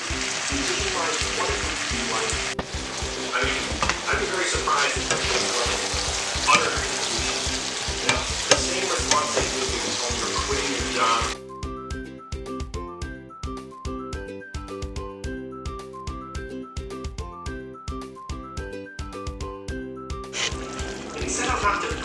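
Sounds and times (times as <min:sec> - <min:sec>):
vegetables sizzling in a pan: 0:00.0 - 0:11.4, 0:20.4 - 0:22.0
background music with steady beat: 0:00.0 - 0:22.0
spatula scraping a pan: 0:03.5 - 0:11.2, 0:20.4 - 0:21.5.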